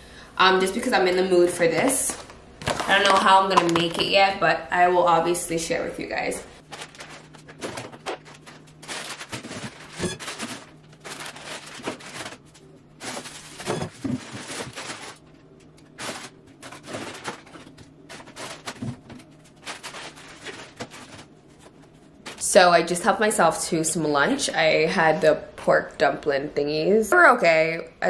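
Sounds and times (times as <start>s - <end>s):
plastic bags rustling: 6.1s - 22.5s
items clattering set down: 6.7s - 12.4s, 13.0s - 15.2s, 16.0s - 21.3s.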